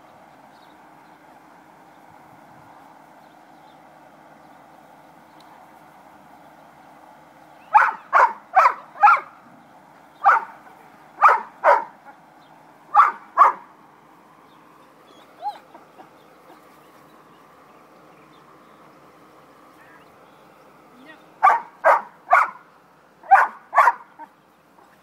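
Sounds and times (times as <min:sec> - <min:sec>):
puppy barking: 0:07.7 - 0:09.4, 0:10.2 - 0:10.6, 0:11.2 - 0:12.0, 0:12.9 - 0:13.7, 0:21.4 - 0:22.6, 0:23.2 - 0:24.3.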